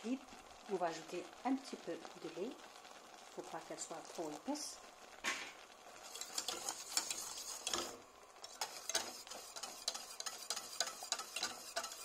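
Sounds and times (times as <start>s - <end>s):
whisk clicking and scraping pan: 6.0s - 12.0s.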